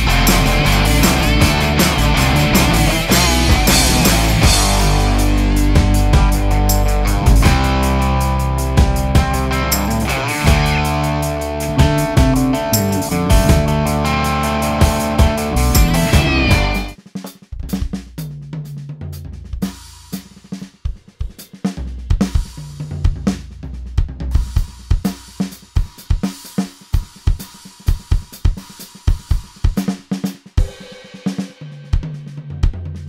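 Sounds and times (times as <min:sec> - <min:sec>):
music track: 0:00.0 - 0:17.0
drum kit groove: 0:00.0 - 0:33.0
sustained low notes: 0:08.8 - 0:17.0.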